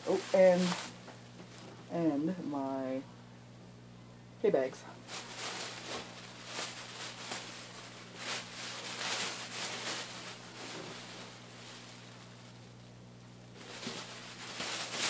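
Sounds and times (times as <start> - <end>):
plastic bags rustling: 0.0 - 1.8, 5.0 - 12.9, 13.5 - 15.0
steady low hum: 0.0 - 15.0.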